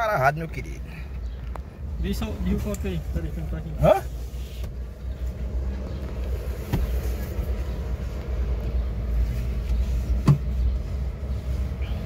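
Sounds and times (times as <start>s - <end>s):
low car cabin rumble: 0.0s - 12.0s
knocks in car: 6.7s - 7.0s.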